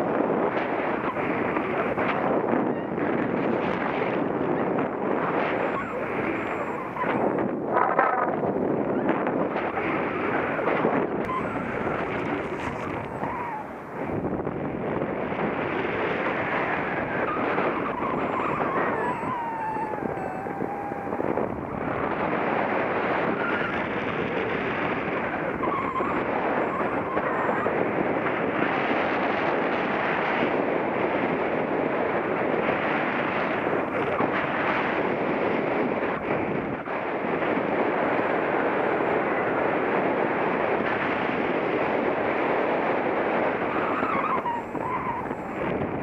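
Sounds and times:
wind buffeting microphone: 0:00.0 - 0:46.0
faint whistling tone: 0:11.2 - 0:12.1.

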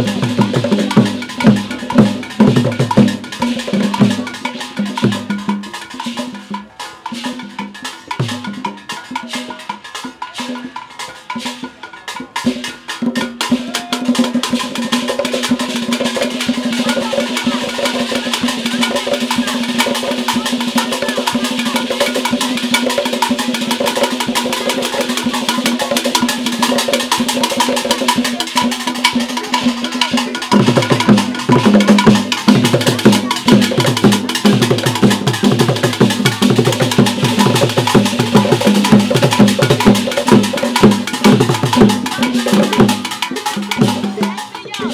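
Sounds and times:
sharp clicking drum strokes: 0:00.0 - 0:44.9
wooden drum ensemble playing: 0:00.0 - 0:44.9.

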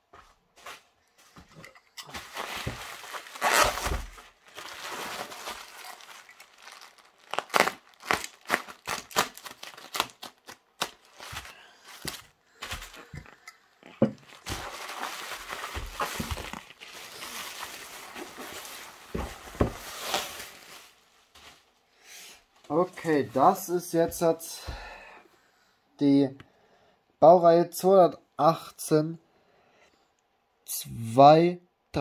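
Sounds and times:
plastic crinkling rustle: 0:02.0 - 0:13.2, 0:14.1 - 0:21.8
bubble wrap crackling: 0:02.2 - 0:13.2, 0:14.1 - 0:21.8
cardboard box set down: 0:18.2 - 0:20.4.

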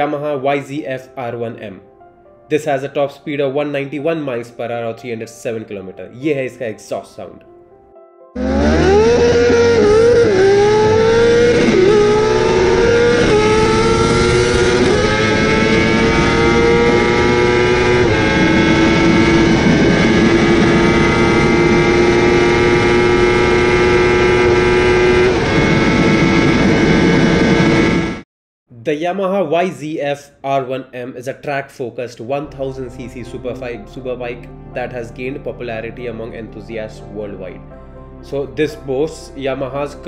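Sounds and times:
motorcycle engine at full throttle: 0:08.4 - 0:28.2
heavy wind rush: 0:12.3 - 0:28.2.

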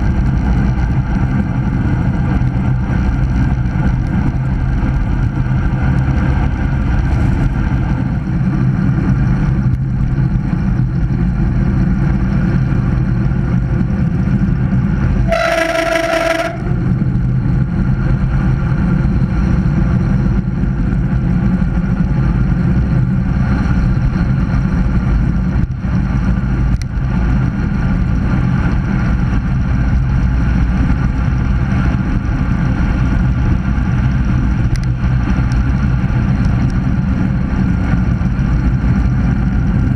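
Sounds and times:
wind rush and road noise: 0:00.0 - 0:39.9
steady horn-like tone: 0:15.2 - 0:17.0.

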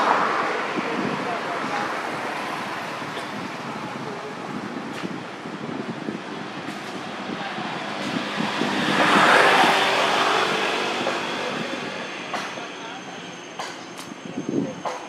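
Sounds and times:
motor vehicle passing by: 0:06.6 - 0:12.2.

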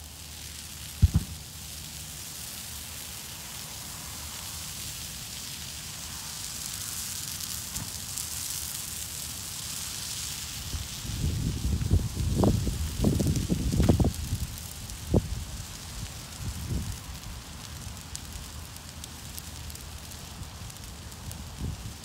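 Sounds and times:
crackling fire: 0:00.0 - 0:22.0
low rumble: 0:01.0 - 0:01.5.

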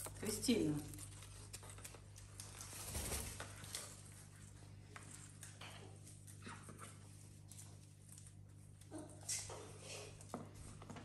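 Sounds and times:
bird nibbling and tearing leaves: 0:00.0 - 0:04.3.

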